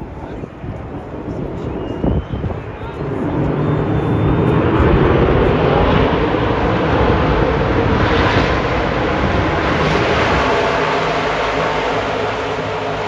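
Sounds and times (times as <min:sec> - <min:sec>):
race truck engines at speed: 0:03.3 - 0:13.0.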